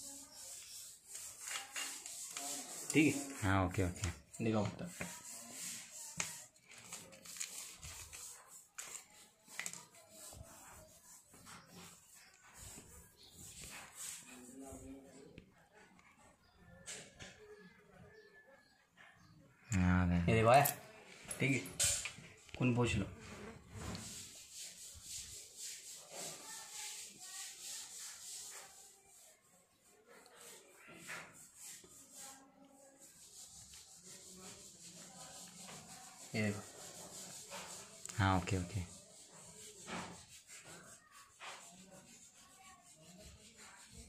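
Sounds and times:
small objects clicking on paper: 6.1 - 10.0.

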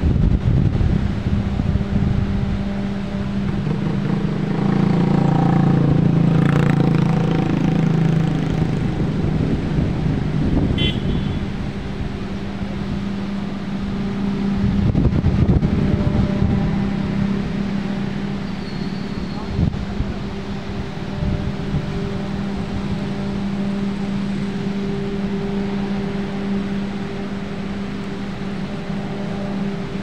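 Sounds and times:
engine hum: 0.0 - 30.0
high chirp: 18.4 - 19.6.

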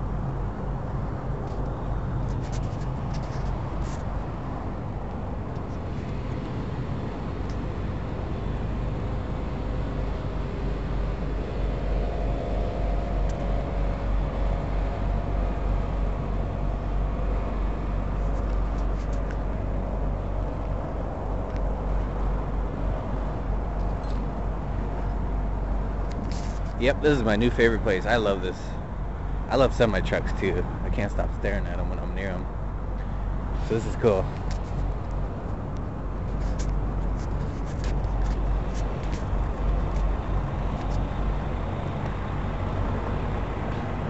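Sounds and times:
faint steady hum: 0.0 - 44.0
traffic engine rumble: 0.0 - 44.0.

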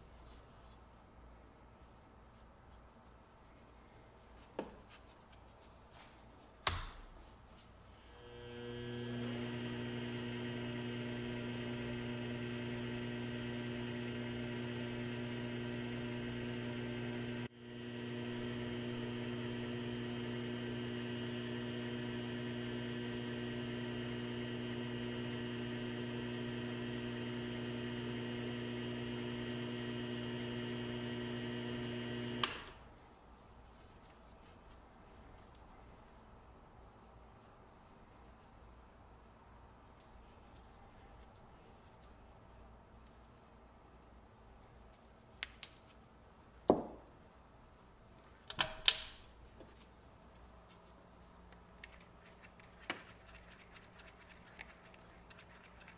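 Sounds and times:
lathe motor humming: 8.1 - 32.7.

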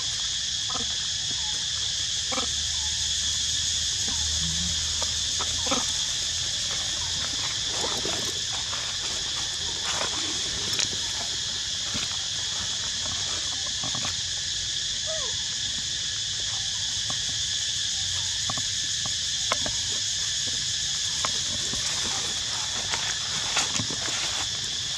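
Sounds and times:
high-pitched insect buzzing: 0.6 - 20.0
rustling of dry leaf litter: 6.2 - 13.7, 21.1 - 24.9.

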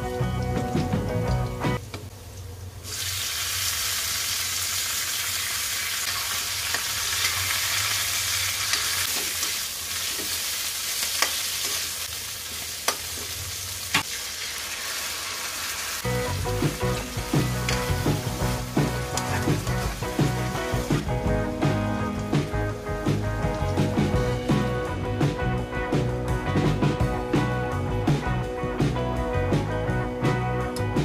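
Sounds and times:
background music: 0.0 - 1.8, 16.1 - 31.0
vegetables sizzling in hot oil: 1.8 - 21.2.

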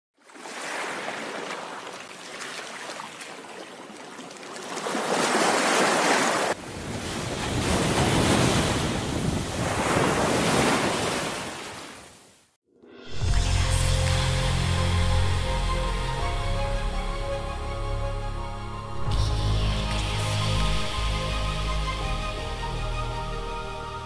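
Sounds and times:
waves breaking on rocks: 0.3 - 12.1.

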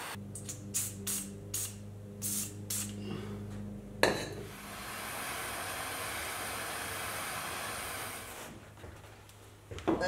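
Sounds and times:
blowtorch hissing: 4.5 - 8.6.

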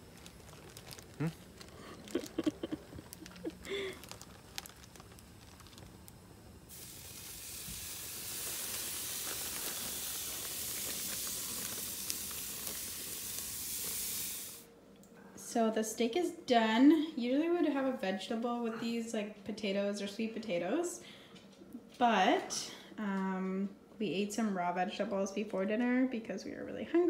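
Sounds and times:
plastic bag crinkling: 0.0 - 14.6
steak sizzling on a grill: 6.6 - 14.7.

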